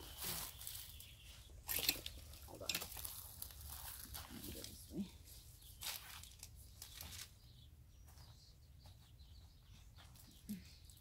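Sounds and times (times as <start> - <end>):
cabbage leaves rustling and crunching: 0.0 - 5.0, 5.8 - 7.3.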